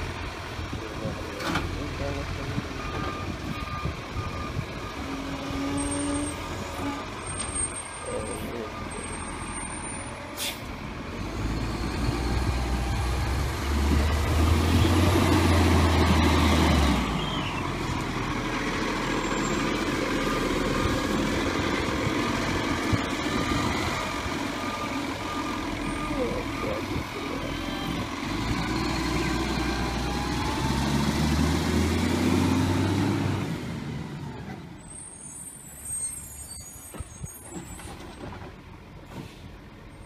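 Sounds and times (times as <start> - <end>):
garbage truck diesel engine: 0.0 - 40.0
air brakes hissing: 9.9 - 10.7, 39.1 - 39.5.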